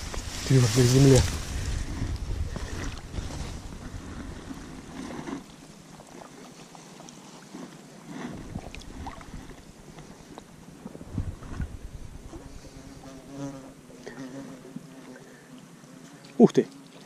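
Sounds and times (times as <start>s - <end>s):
wind buffeting microphone: 0.0s - 5.2s, 10.5s - 13.4s
light ticks and rustles: 5.0s - 11.0s.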